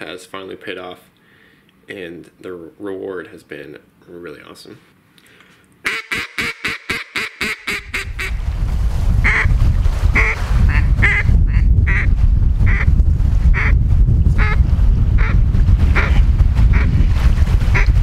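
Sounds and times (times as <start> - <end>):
duck call quacks: 5.8 - 8.4, 9.3 - 9.5, 10.2 - 12.1, 12.7 - 12.9, 14.4 - 14.6, 16.0 - 16.9, 17.7 - 18.0
wind rumble on microphone: 7.7 - 18.0.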